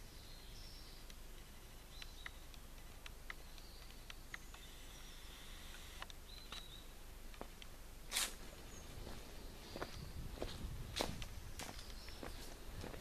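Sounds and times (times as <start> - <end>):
insects buzzing: 0.0 - 7.1
light clicks: 1.0 - 5.0.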